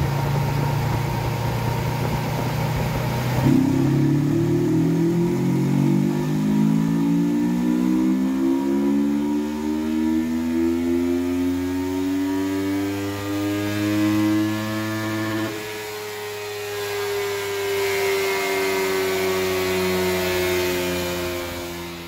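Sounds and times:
motorcycle engine running hard: 0:00.0 - 0:22.0.

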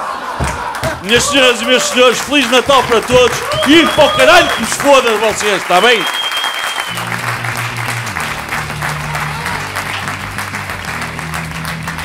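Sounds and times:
audience applauding: 0:00.0 - 0:12.0
music with low bass notes: 0:07.0 - 0:12.0.

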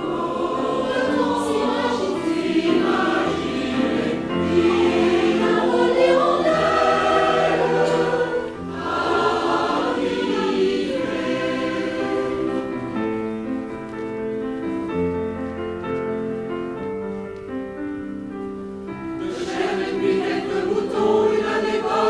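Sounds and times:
mixed choir singing: 0:00.0 - 0:13.0, 0:19.2 - 0:22.0
piano accompaniment: 0:00.0 - 0:22.0.

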